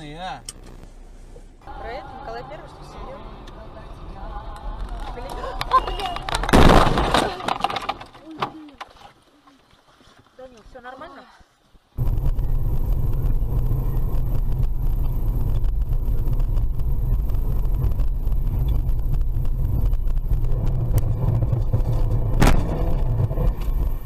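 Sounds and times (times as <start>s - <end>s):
car engine and road noise: 0.0s - 7.0s, 11.8s - 24.0s.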